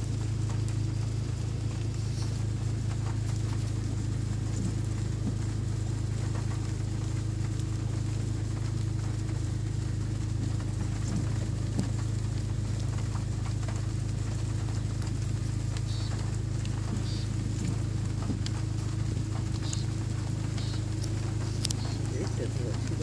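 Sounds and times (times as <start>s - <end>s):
low mechanical hum: 0.0s - 23.0s
faint clicks: 14.6s - 23.0s.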